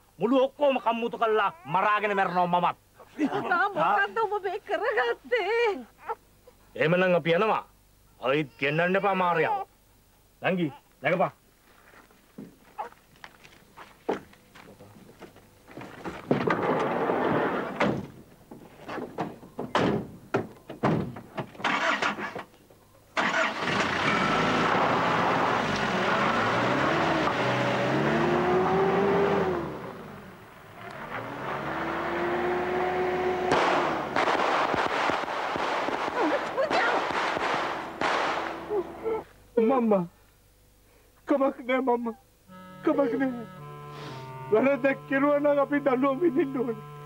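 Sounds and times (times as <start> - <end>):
knocks and thuds in a van: 17.8 - 21.6
vehicle engines revving: 23.2 - 34.9, 35.8 - 39.1, 43.4 - 47.0.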